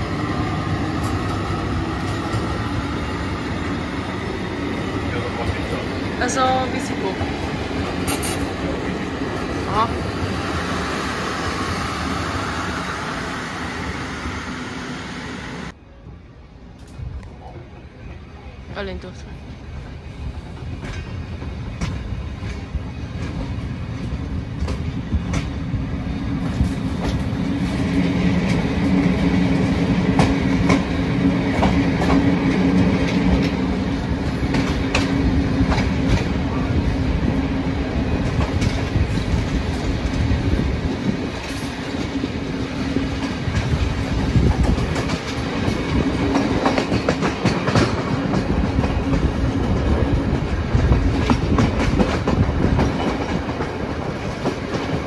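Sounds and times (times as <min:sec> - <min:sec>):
train wheels clicking over rail joints: 0:20.4 - 0:25.7, 0:26.3 - 0:36.5, 0:38.1 - 0:55.0.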